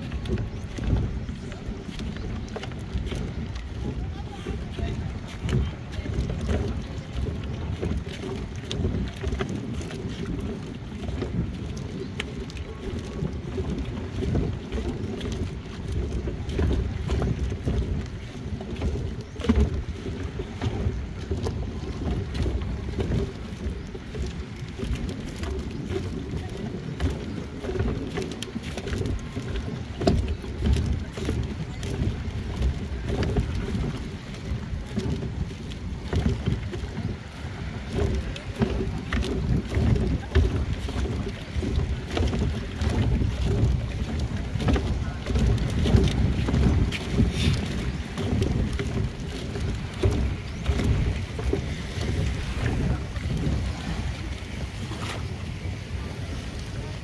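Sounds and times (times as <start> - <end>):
soft knocks of dock: 0.0 - 57.0
water sloshing against dock: 0.0 - 57.0
wind buffeting microphone: 0.0 - 57.0.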